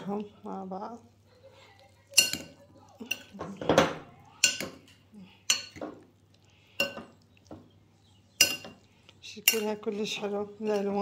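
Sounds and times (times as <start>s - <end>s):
utensil clinking against bowl: 2.1s - 6.0s, 8.3s - 11.0s.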